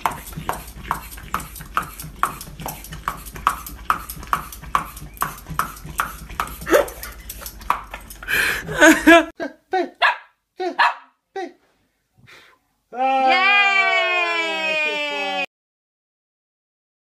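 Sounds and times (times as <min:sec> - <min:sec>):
peeler scraping a carrot: 0:00.0 - 0:08.3.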